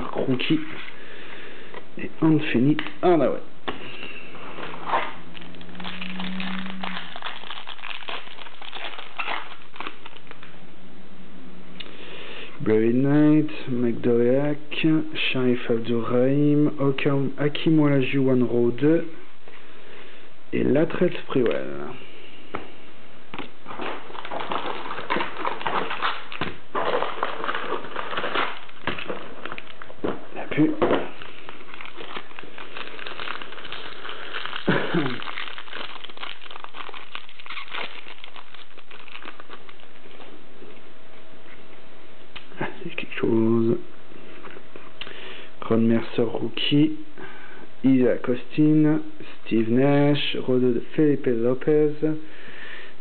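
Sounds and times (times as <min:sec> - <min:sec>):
foil wrapper crinkling and tearing: 0:04.2 - 0:10.6, 0:23.4 - 0:40.3.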